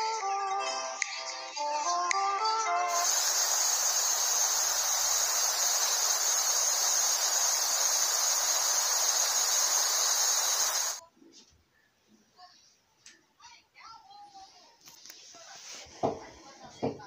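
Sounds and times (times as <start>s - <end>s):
waterfall hissing onto rocks: 2.9s - 11.0s.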